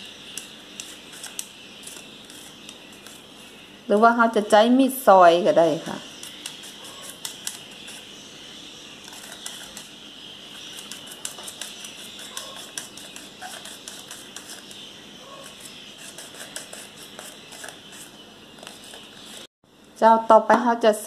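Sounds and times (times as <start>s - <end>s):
mandoline slicer scraping strokes: 0.4s - 3.3s, 6.1s - 8.1s, 9.0s - 9.9s, 10.5s - 14.8s, 15.4s - 19.5s.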